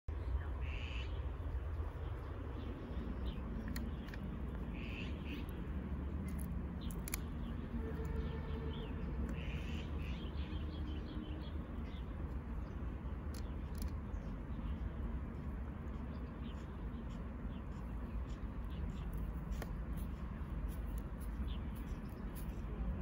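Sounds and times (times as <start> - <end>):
bird calling: 0.6 - 1.2, 4.6 - 5.6, 7.8 - 11.2.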